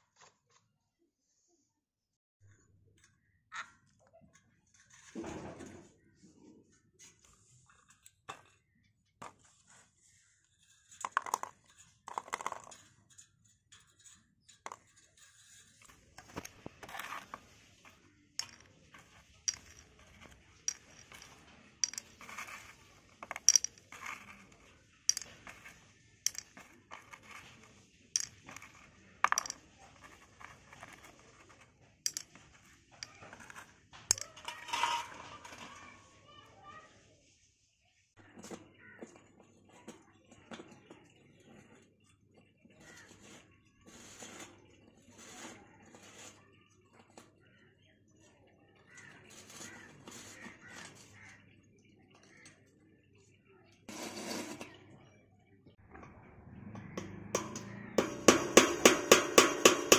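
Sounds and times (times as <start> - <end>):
metal tools clinking on parts: 18.4 - 24.5, 25.1 - 27.5, 32.1 - 32.4, 34.1 - 35.6.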